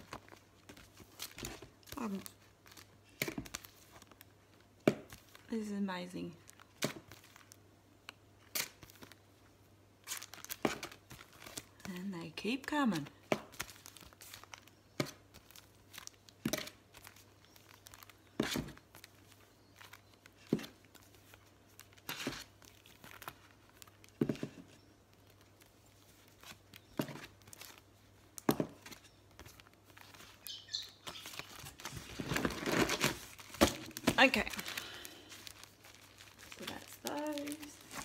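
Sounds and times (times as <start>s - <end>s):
plastic packaging rustling: 0.0s - 5.5s, 6.4s - 7.7s, 8.4s - 9.4s, 10.0s - 11.9s, 12.6s - 38.0s.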